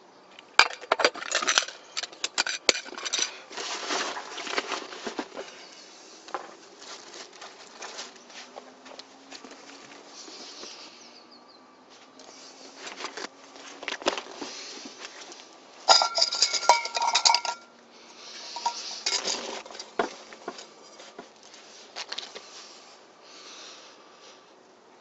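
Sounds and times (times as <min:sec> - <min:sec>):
metal cookware clinking: 0:15.9 - 0:17.7, 0:18.6 - 0:19.5.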